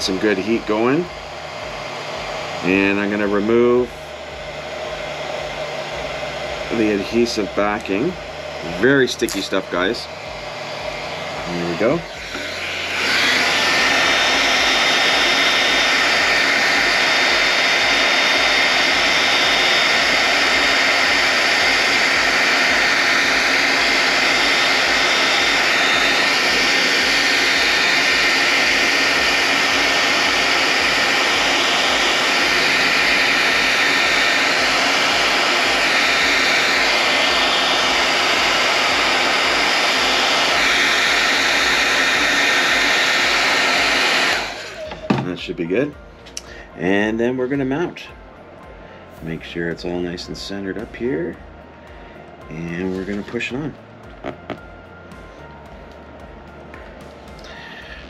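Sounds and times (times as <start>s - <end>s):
hair dryer running: 0.0s - 58.0s.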